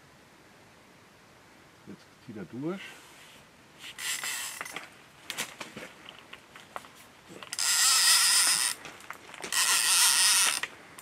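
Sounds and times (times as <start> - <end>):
fishing reel ratchet buzzing: 4.0 - 4.7, 7.5 - 8.8, 9.5 - 10.7.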